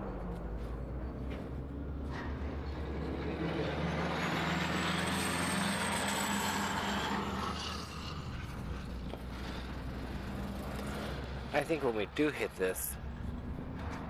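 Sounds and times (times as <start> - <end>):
low engine hum: 0.0 - 5.0, 13.0 - 14.0.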